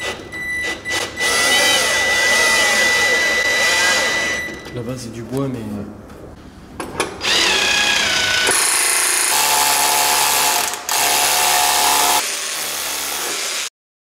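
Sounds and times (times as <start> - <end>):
drill boring with rising whine: 1.2 - 4.4, 7.2 - 13.7.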